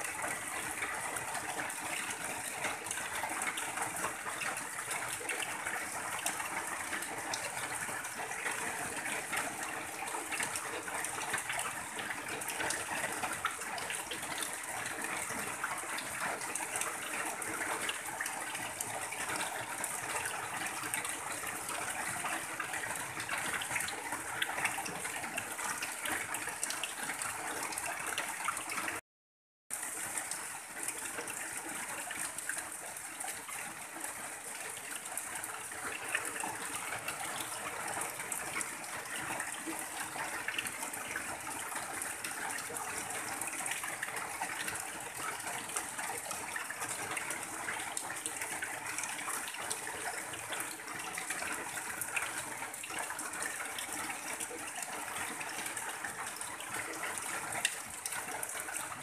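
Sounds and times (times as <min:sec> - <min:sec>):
heavy rain on a tin roof: 0:00.0 - 0:29.0, 0:29.7 - 0:59.0
runoff pouring and splashing: 0:00.0 - 0:29.0, 0:29.7 - 0:59.0.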